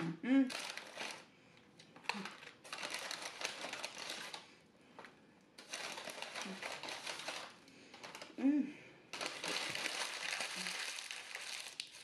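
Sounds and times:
paper bag rustling and crinkling: 0.5s - 1.3s, 2.0s - 4.5s, 5.6s - 8.4s, 9.1s - 12.0s.

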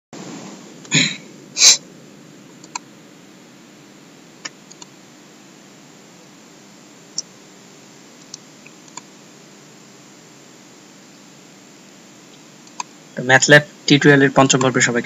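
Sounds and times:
steady background hiss: 0.2s - 15.0s
faint clicks: 2.6s - 2.9s, 4.4s - 4.9s, 8.2s - 9.1s, 12.3s - 12.9s.

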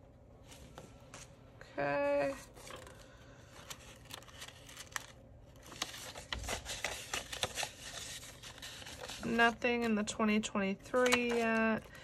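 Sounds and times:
paper and plastic rustling: 2.1s - 10.2s, 10.8s - 12.0s
binder pages turning: 2.2s - 10.0s, 10.8s - 12.0s.

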